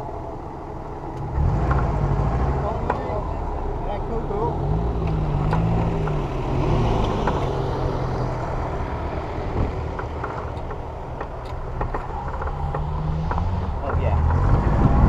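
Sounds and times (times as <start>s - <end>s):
engine running at low revs: 0.0s - 15.0s
clicks and knocks: 9.9s - 14.5s.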